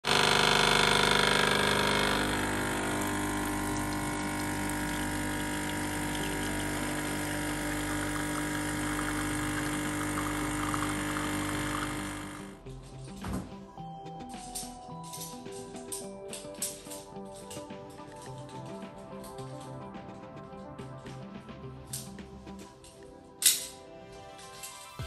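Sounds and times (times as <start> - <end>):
espresso machine pump humming: 0.0 - 12.6.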